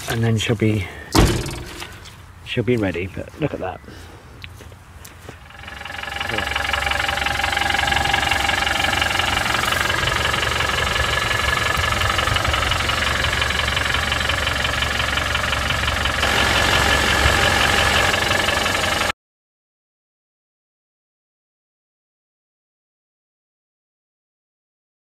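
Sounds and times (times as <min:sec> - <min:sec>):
diesel engine idling with knock: 0:01.1 - 0:02.1, 0:05.3 - 0:19.1.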